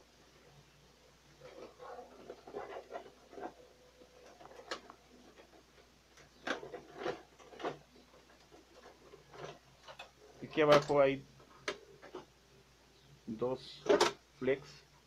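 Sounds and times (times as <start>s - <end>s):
plastic printer cover scraping: 1.3s - 10.8s.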